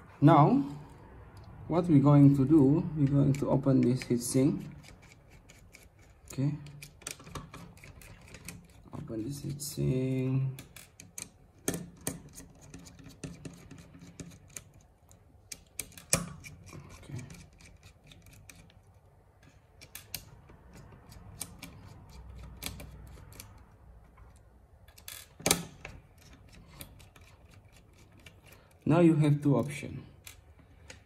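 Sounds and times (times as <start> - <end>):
screwdriver clicking on screws: 3.0 - 8.9, 10.6 - 23.7.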